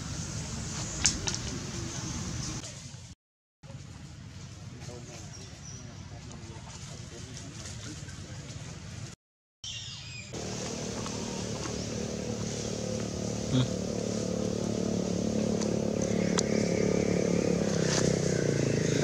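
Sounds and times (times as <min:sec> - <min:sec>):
motor engine running: 0:10.4 - 0:19.0.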